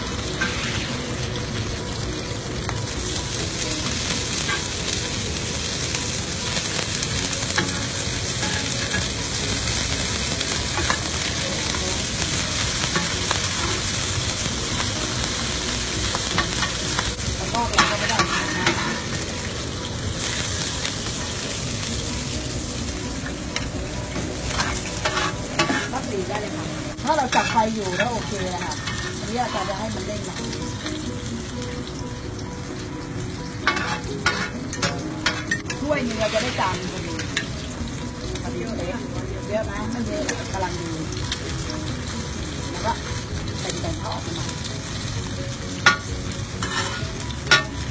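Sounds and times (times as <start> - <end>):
food sizzling in oil: 0.0 - 47.9
metal spatulas scraping pan: 0.3 - 1.0, 7.5 - 9.2, 17.5 - 19.3, 24.1 - 26.5, 27.1 - 30.0, 33.6 - 37.5, 45.8 - 47.9.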